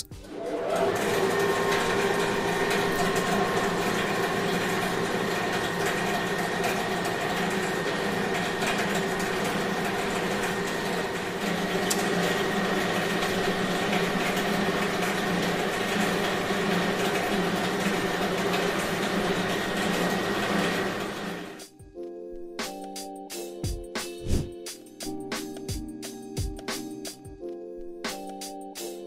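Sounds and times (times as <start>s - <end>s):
machinery humming: 0.0s - 21.6s.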